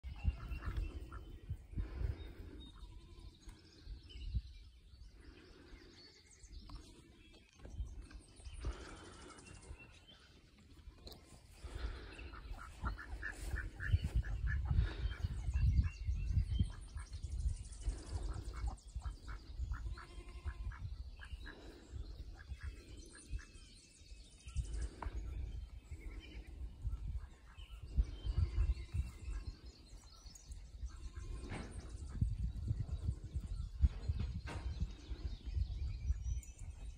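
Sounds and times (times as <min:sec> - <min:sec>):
low rumble on microphone: 0:00.0 - 0:07.0, 0:11.6 - 0:23.7, 0:24.4 - 0:36.9
birds chirping and calling: 0:00.0 - 0:36.9.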